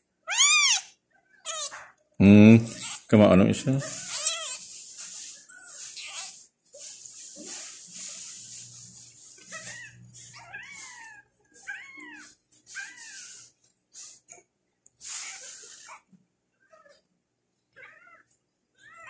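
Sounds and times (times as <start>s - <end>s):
bursts of hissy noise: 15.0s - 16.0s.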